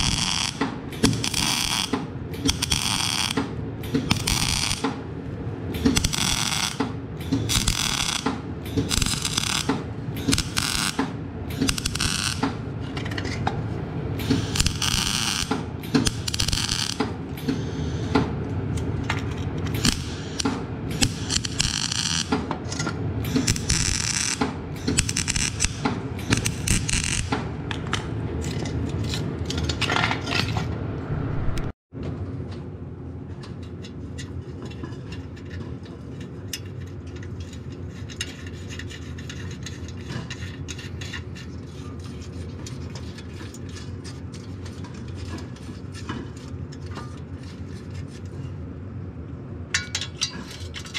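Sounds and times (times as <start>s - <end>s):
welder arc crackling: 0.0s - 1.9s, 2.5s - 3.4s, 4.1s - 4.8s, 6.0s - 6.8s, 7.5s - 8.2s, 8.8s - 9.7s, 10.3s - 11.0s, 14.3s - 17.0s
steady low hum: 0.0s - 50.9s.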